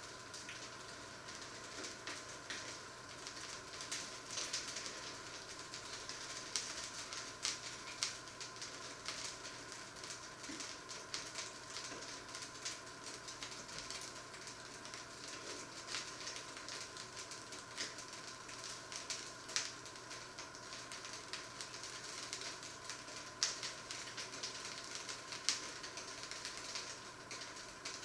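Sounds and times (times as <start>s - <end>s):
faint steady hum: 0.0s - 28.0s
fat sizzling in a frying pan: 0.0s - 28.0s.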